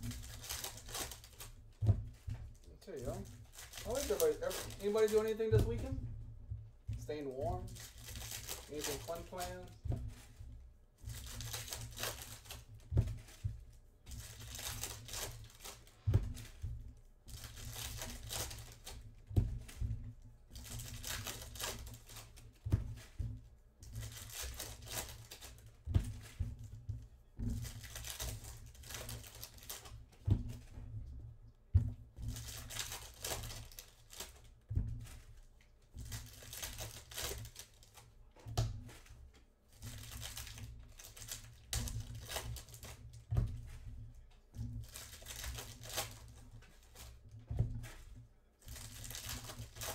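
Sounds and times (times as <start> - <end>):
foil wrappers tearing and crinkling: 0.0 - 1.6, 2.8 - 6.0, 7.0 - 9.8, 11.1 - 13.4, 14.1 - 16.5, 17.3 - 19.0, 20.6 - 22.5, 23.9 - 25.8, 27.6 - 30.0, 32.3 - 34.5, 36.0 - 38.1, 39.8 - 43.2, 44.8 - 47.1, 48.6 - 49.9.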